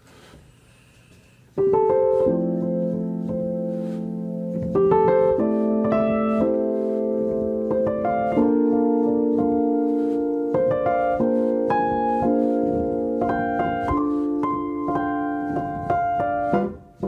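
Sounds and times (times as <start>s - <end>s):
piano chords: 1.5s - 17.0s.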